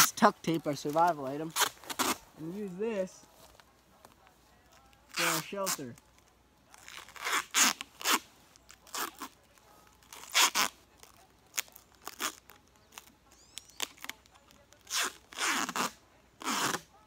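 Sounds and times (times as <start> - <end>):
tape ripping off roll: 0.9 - 2.2, 6.7 - 9.4, 10.0 - 16.9.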